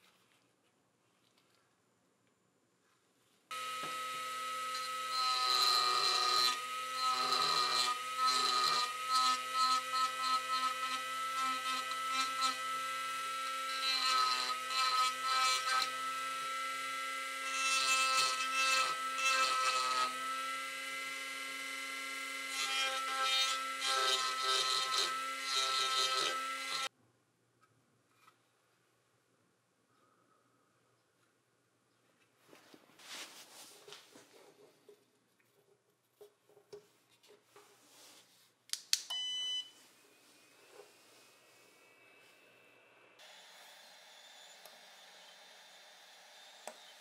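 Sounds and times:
power tool whining: 3.5s - 26.9s, 43.2s - 47.0s.

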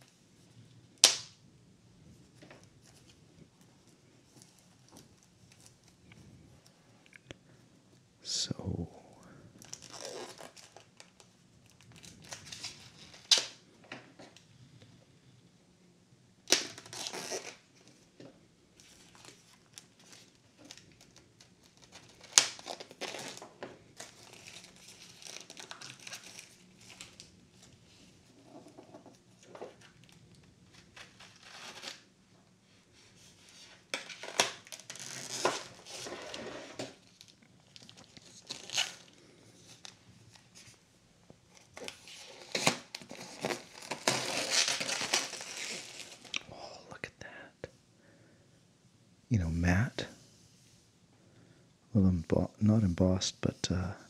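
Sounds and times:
plastic shrink-wrap crinkling and tearing: 9.6s - 13.6s, 16.4s - 18.0s, 18.8s - 28.2s, 29.3s - 32.1s, 33.4s - 40.8s, 41.5s - 46.4s.

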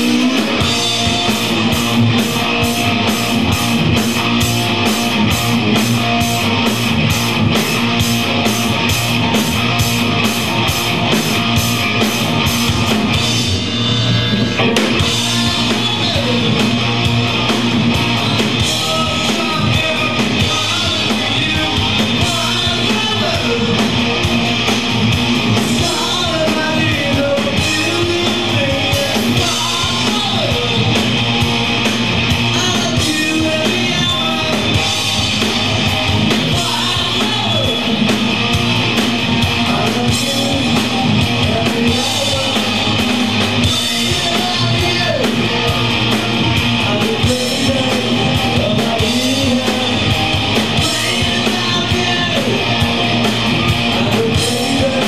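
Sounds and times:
rock band playing: 0.0s - 55.0s
person singing: 14.6s - 16.9s, 18.1s - 24.0s, 25.7s - 31.0s, 39.6s - 52.8s, 53.7s - 55.0s.

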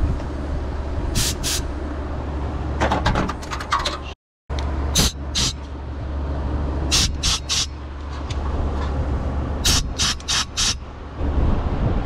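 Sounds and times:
short hissing bursts: 1.2s - 1.7s, 6.9s - 7.7s, 9.6s - 10.8s.

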